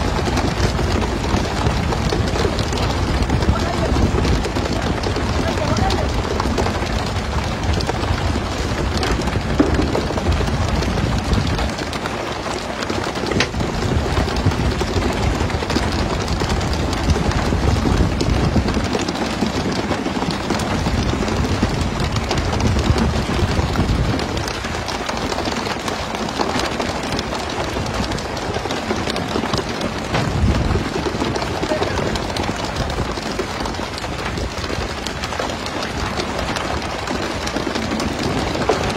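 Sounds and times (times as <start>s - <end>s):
sea water rushing along a boat: 0.0s - 38.9s
small knocks: 8.9s - 13.7s.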